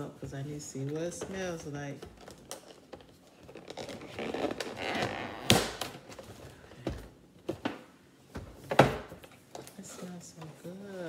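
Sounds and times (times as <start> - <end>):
tape ripping: 2.2 - 6.3.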